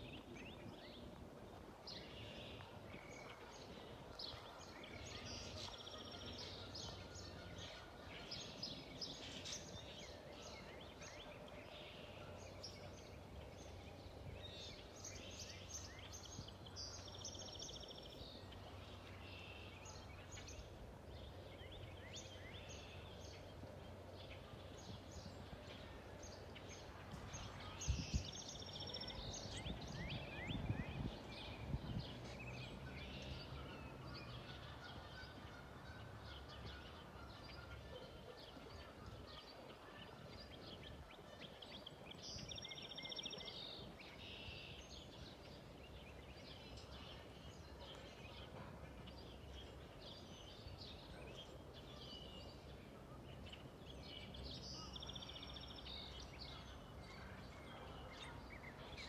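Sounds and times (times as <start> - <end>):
small birds chirping: 36.4 - 59.0.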